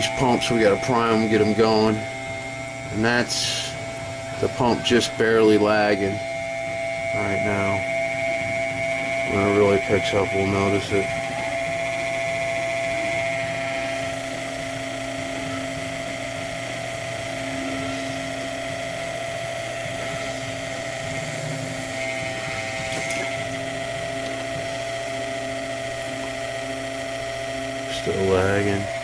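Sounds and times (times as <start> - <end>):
electric pump whining and humming: 0.0 - 29.0.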